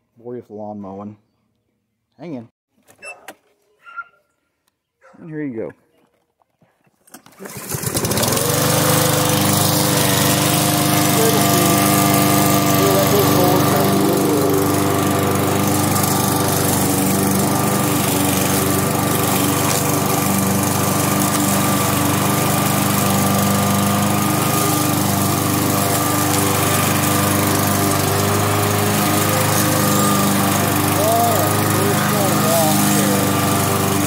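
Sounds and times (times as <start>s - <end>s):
lawn mower engine running: 7.4s - 34.0s.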